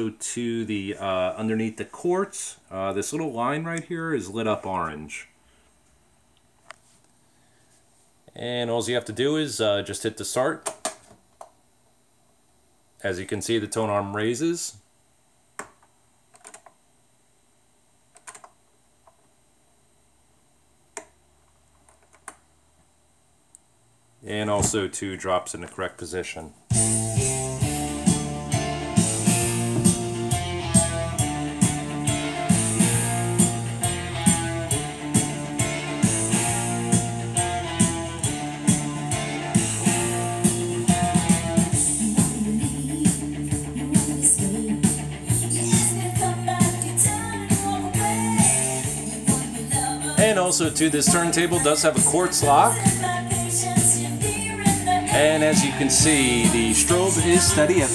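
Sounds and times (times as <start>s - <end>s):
rock music from vinyl record: 0.0s - 2.3s, 26.7s - 57.9s.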